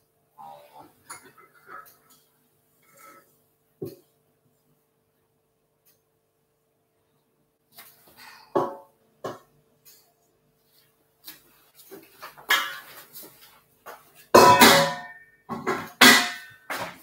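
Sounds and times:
metal bowl and utensils clattering: 0:12.0 - 0:13.5, 0:14.1 - 0:17.0.

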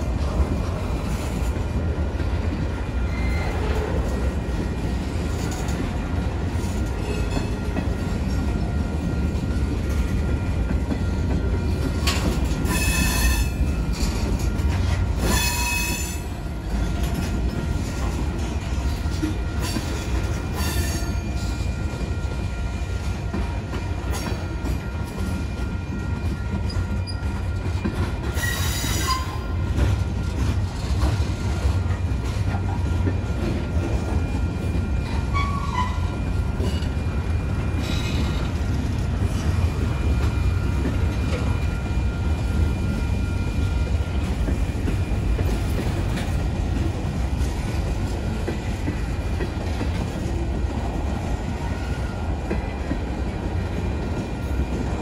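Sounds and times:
steel train wheels rumbling on rail: 0:00.0 - 0:55.0
high-pitched wheel squeals: 0:03.0 - 0:04.0, 0:12.0 - 0:14.6, 0:15.2 - 0:16.3, 0:20.6 - 0:21.7, 0:28.3 - 0:29.6, 0:35.0 - 0:36.9.

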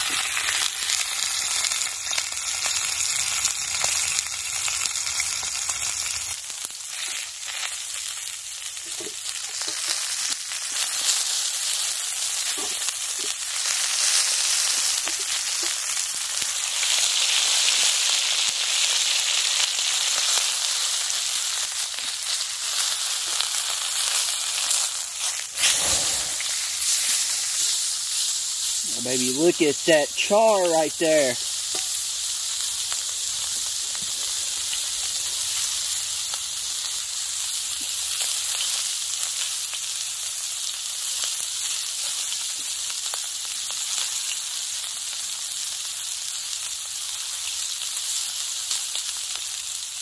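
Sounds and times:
steak sizzling in skillet: 0:00.0 - 0:50.0
pan flaring up: 0:25.4 - 0:31.4.

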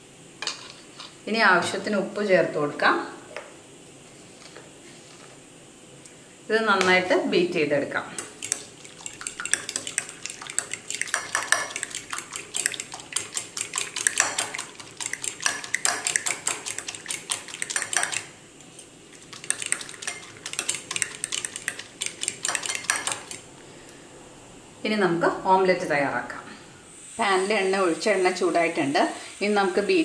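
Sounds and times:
fork beating eggs in bowl: 0:08.1 - 0:23.5.

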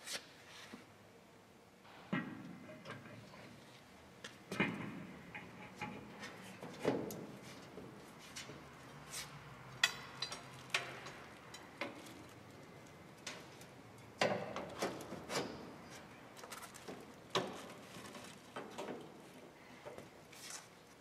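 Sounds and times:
metallic clicks and knocks: 0:09.8 - 0:15.5.

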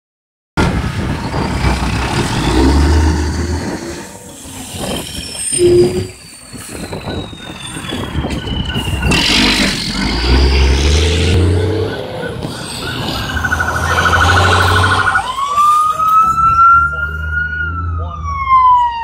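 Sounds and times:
passing traffic rumbling: 0:00.6 - 0:19.0
rapid warbling siren: 0:06.9 - 0:09.6, 0:11.2 - 0:19.0
slow falling siren: 0:10.6 - 0:19.0.

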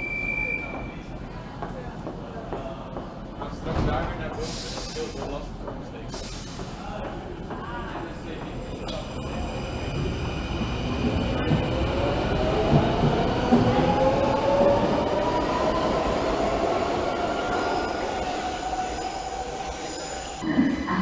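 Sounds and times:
metro train drive whine: 0:08.5 - 0:20.5.

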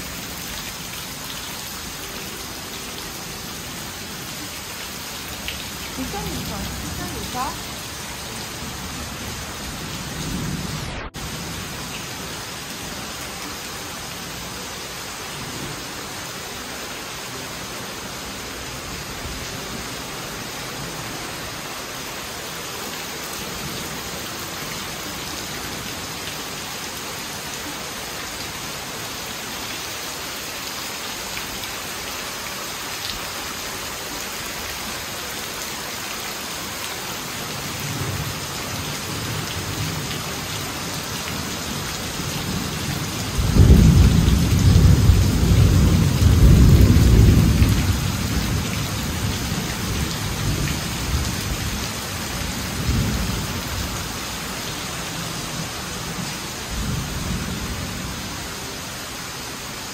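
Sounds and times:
heavy rain on puddles: 0:00.0 - 0:59.9.

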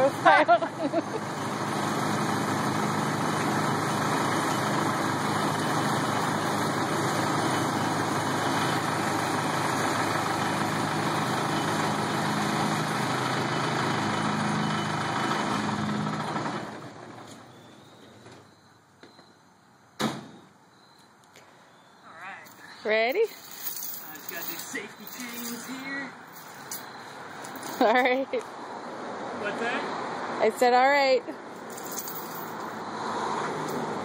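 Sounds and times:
diesel engine idling: 0:00.0 - 0:18.6.

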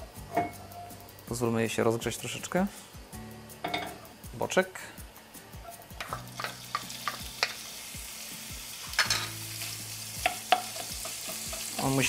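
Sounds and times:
bacon sizzling in a frying pan: 0:00.0 - 0:12.0.

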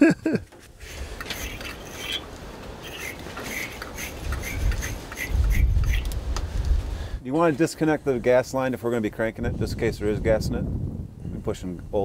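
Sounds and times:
gloved hands scraping metal: 0:00.5 - 0:06.2
wind rumble on microphone: 0:04.2 - 0:07.2, 0:09.1 - 0:12.0.

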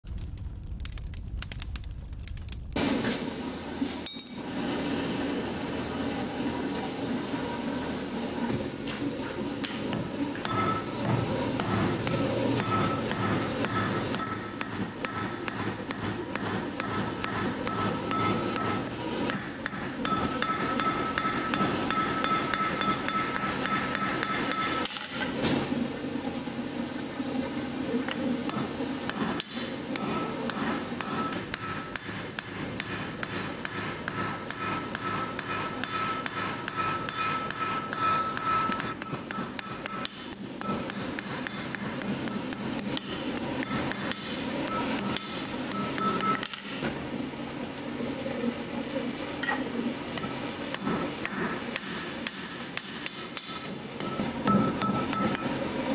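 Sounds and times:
anvil ringing: 0:04.0 - 0:04.5, 0:10.4 - 0:25.2, 0:29.1 - 0:46.8, 0:50.8 - 0:55.6
hammer striking iron on anvil: 0:04.0 - 0:04.5, 0:09.6 - 0:25.4, 0:28.5 - 0:46.9, 0:50.2 - 0:55.6.

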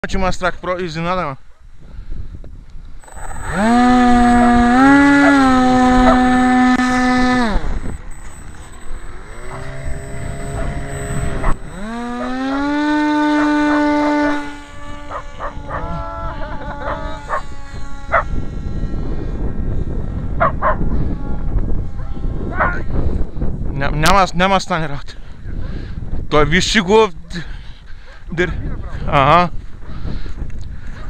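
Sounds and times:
wind rushing over microphone: 0:00.0 - 0:31.0
model airplane motor drone: 0:02.1 - 0:23.5
clicks: 0:07.8 - 0:09.7.

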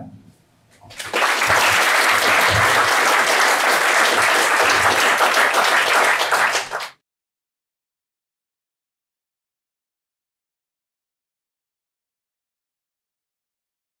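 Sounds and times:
audience applauding: 0:00.9 - 0:07.0.

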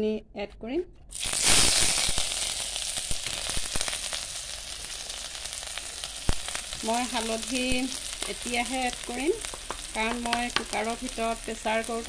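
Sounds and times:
oil crackling: 0:01.1 - 0:12.0
paste sizzling in hot oil: 0:01.1 - 0:12.0.

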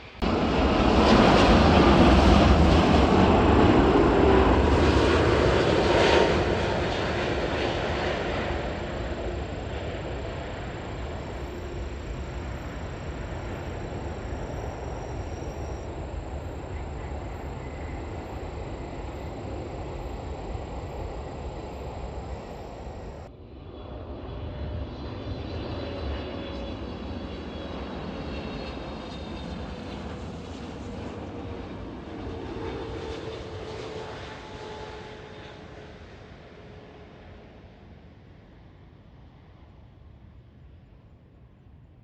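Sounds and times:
jet passing overhead whining: 0:00.0 - 0:23.3
jet airliner takeoff roar: 0:00.0 - 0:41.9.

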